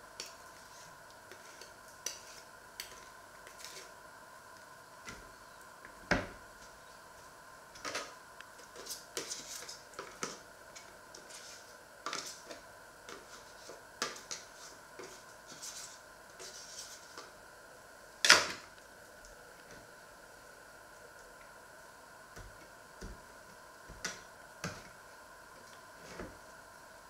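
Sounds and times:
knife scraping spread on bread: 0.2s - 3.9s, 8.7s - 10.4s, 11.2s - 17.3s.

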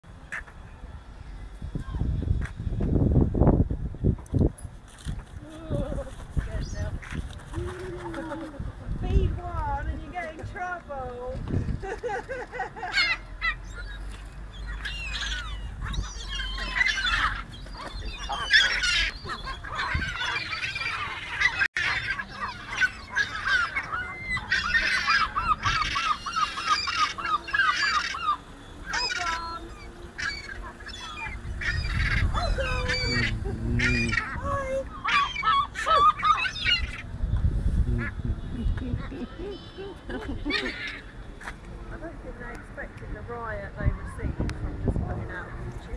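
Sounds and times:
gulls calling: 11.8s - 37.3s, 37.9s - 41.6s.

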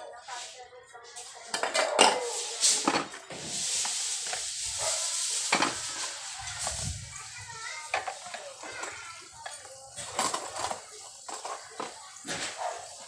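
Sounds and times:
cutlery clinking on plates: 1.4s - 6.1s
steady hiss: 2.2s - 13.0s.

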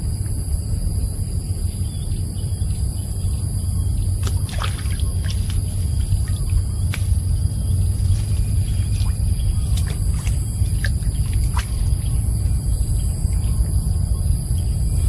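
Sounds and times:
low rumble: 0.0s - 15.0s
water trickling and splashing: 4.2s - 7.2s, 7.8s - 12.2s.

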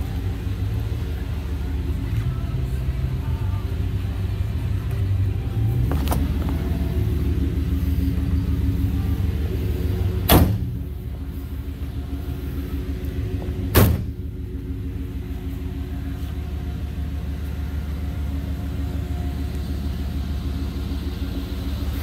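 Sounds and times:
low rumble: 0.0s - 22.0s
heavy metal door slams: 10.3s - 10.8s, 13.7s - 14.2s.

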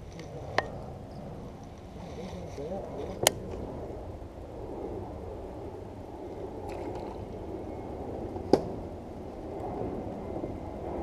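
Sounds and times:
wind rumble on microphone: 0.0s - 11.0s
water around a boat: 6.2s - 8.9s.

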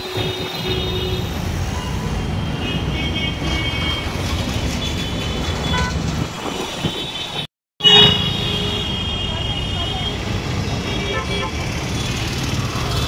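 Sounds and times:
vehicle engines passing: 0.0s - 7.4s, 9.2s - 13.0s
short car horn toots: 7.8s - 9.0s.

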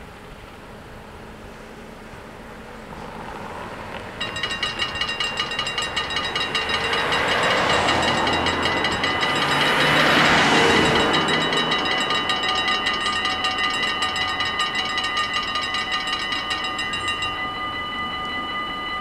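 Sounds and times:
passing car traffic: 0.3s - 19.0s
level crossing bells ringing: 4.2s - 19.0s.

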